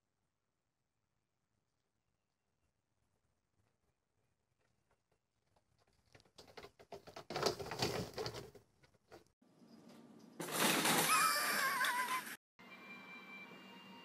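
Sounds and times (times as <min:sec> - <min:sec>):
light taps and pattering: 0:04.6 - 0:09.3.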